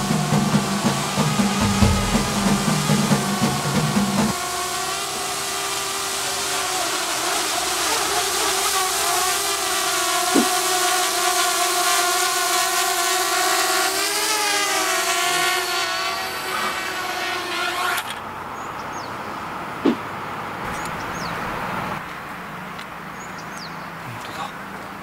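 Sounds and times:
drone propellers whining: 0:00.0 - 0:04.5, 0:20.7 - 0:22.1.

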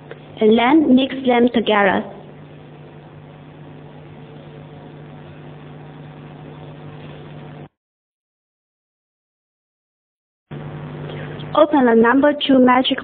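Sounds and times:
low steady hum: 0:00.0 - 0:07.7, 0:10.5 - 0:13.0
steady hiss: 0:10.5 - 0:11.9.

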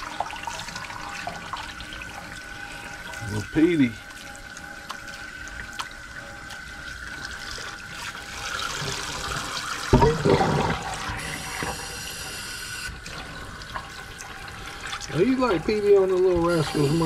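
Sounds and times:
water spraying into a steel sink: 0:06.6 - 0:17.0.

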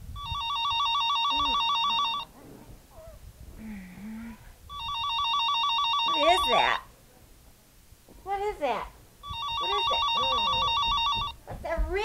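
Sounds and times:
electronic telephone ringer warbling: 0:00.2 - 0:02.3, 0:04.7 - 0:06.8, 0:09.2 - 0:11.3.

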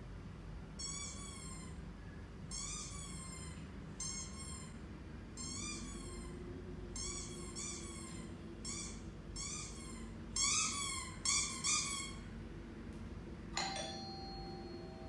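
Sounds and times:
steady high ringing tone: 0:13.6 - 0:15.0.

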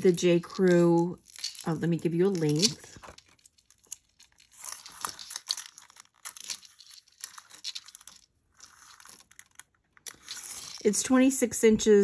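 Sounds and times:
chain necklace rustling and clicking: 0:00.0 - 0:10.9.

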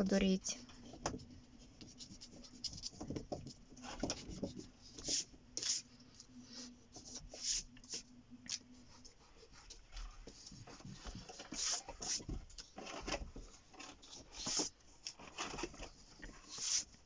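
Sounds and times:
eraser scrubbing on paper: 0:04.9 - 0:05.9, 0:06.5 - 0:08.1, 0:08.7 - 0:12.3, 0:16.4 - 0:17.0.

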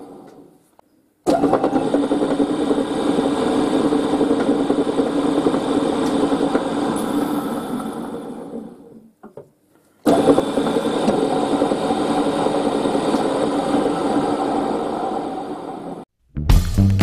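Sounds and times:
milling machine motor running: 0:01.4 - 0:09.0, 0:10.1 - 0:16.0.

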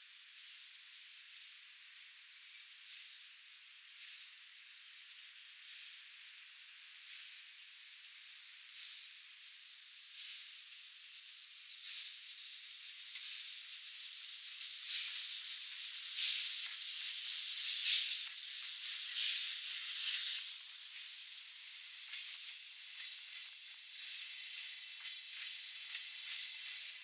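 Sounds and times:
steam locomotive hissing: 0:13.6 - 0:27.0.

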